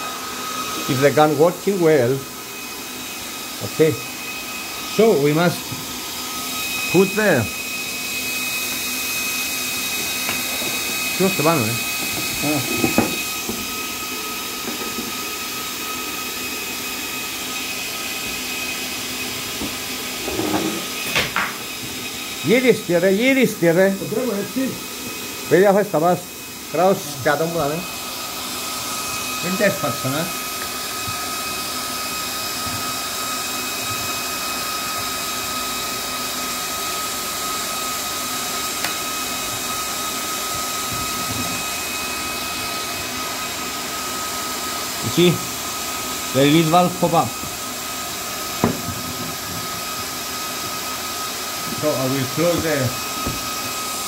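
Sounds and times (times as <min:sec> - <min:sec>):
compressor cooling fan hum: 0:00.0 - 0:36.0.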